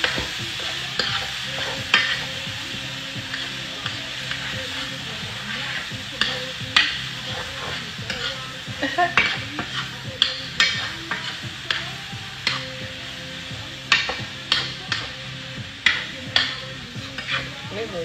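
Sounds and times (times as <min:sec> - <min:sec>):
utensil scraping pan: 0:00.0 - 0:02.5, 0:09.1 - 0:12.8, 0:15.8 - 0:17.6
vegetables sizzling in frying pan: 0:00.0 - 0:18.0.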